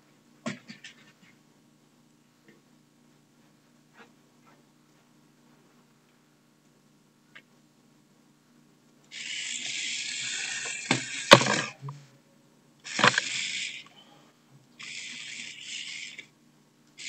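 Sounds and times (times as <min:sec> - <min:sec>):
bursts of hissing noise: 0:09.1 - 0:11.8, 0:12.9 - 0:13.9, 0:14.8 - 0:16.3.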